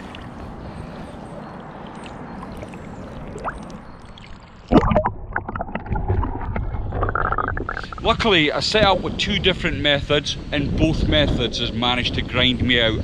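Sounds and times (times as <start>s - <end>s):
river water lapping and gurgling: 0.0s - 8.4s
bubbling underwater noise: 0.0s - 8.5s.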